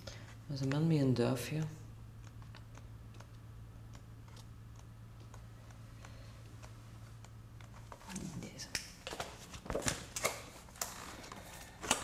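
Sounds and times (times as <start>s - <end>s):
faint low hum: 0.0s - 12.0s
book pages rustling: 9.0s - 12.0s.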